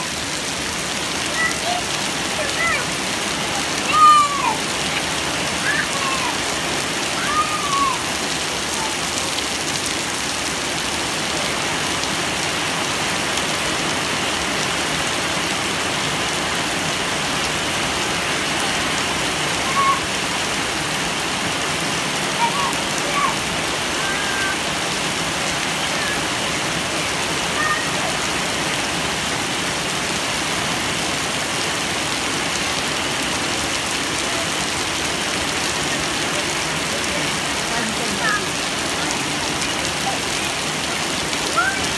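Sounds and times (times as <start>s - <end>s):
children calling out: 0.0s - 10.1s, 17.0s - 21.0s, 21.7s - 29.7s, 33.9s - 41.9s
heavy rain falling: 0.0s - 41.9s.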